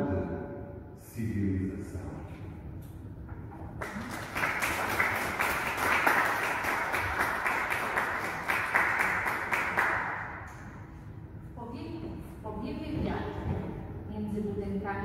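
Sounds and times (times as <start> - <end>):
audience applauding: 3.8 - 10.6.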